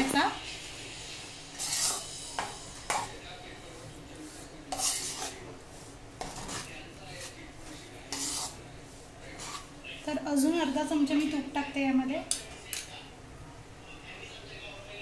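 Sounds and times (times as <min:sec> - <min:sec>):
metal spoon scraping a pan: 0:00.0 - 0:03.2, 0:04.2 - 0:10.1.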